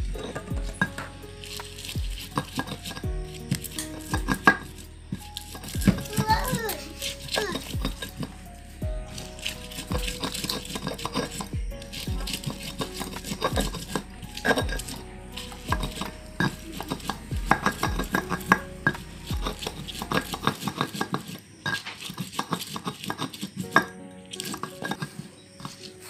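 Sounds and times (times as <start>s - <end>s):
music with thumping beat: 0.0s - 1.3s, 1.9s - 4.8s, 5.7s - 6.6s, 7.4s - 9.2s, 9.9s - 20.6s.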